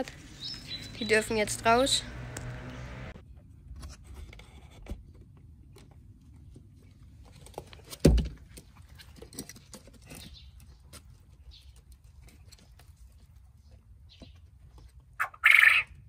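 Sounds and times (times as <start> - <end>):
birds' feet pattering on wood: 0.0 - 3.0, 6.6 - 15.2.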